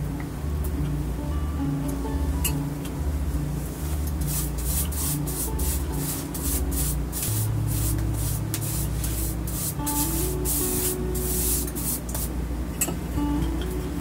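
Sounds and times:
background music: 0.0s - 14.0s
rolling pin rubbing on dough: 4.2s - 12.0s.

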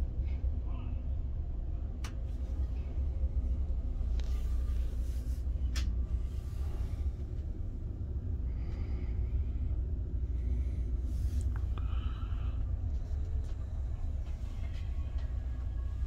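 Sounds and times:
rail car rumbling on track: 9.8s - 16.0s.

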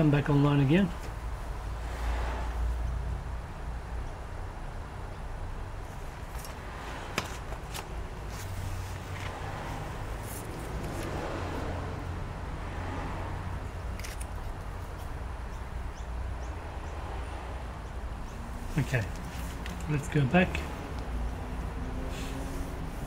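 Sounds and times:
paper card being handled: 6.2s - 9.4s.

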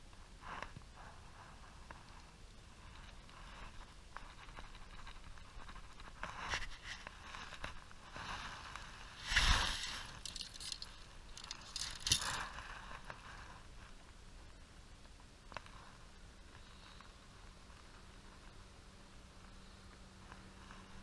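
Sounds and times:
clothing and gear rustling: 2.8s - 13.6s.

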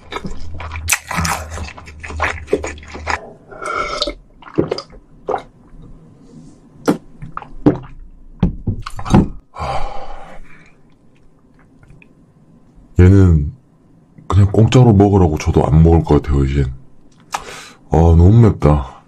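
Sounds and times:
water gulps swallowed: 0.0s - 6.0s
breathy exhales: 3.2s - 4.2s, 9.5s - 10.8s.

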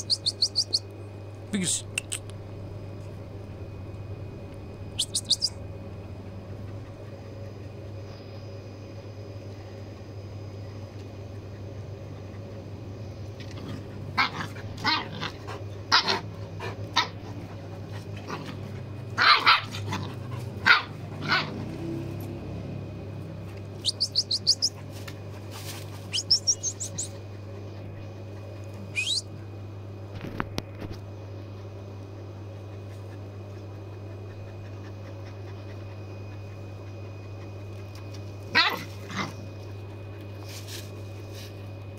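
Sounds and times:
puppies yelping and barking: 0.0s - 0.8s, 23.8s - 24.8s, 26.1s - 27.1s, 29.0s - 29.2s
very high chirps: 0.0s - 0.9s, 5.0s - 5.6s, 23.8s - 24.8s, 26.1s - 27.1s, 28.9s - 29.3s
steady low hum: 0.0s - 41.9s.

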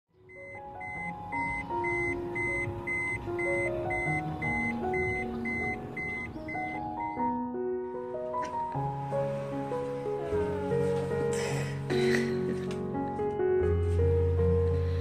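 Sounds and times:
melody of held notes: 0.3s - 10.9s.

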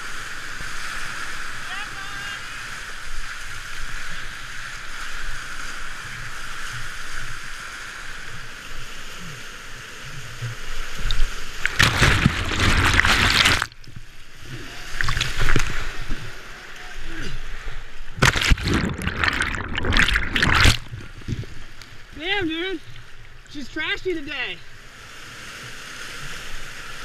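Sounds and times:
water splashing against kayak: 0.0s - 27.0s
rushing whitewater: 10.6s - 13.8s
water crashing over boat: 11.5s - 13.8s, 18.1s - 21.5s.

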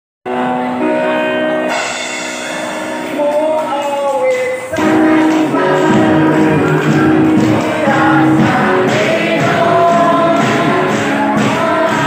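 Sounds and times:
instrumental chords with gliding melody: 0.3s - 11.4s
men singing together: 4.6s - 12.0s.

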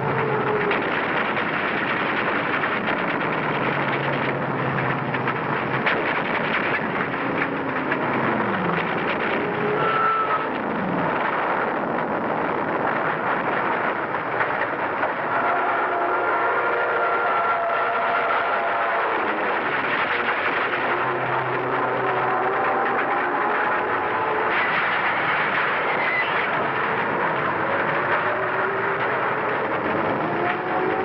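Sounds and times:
sharp crack: 18.7s - 30.6s.

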